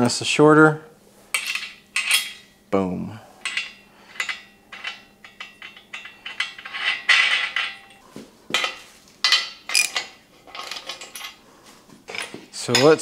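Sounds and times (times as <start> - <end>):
steel parts clinking and clanking: 1.3 - 2.5, 3.4 - 11.4, 12.1 - 13.0.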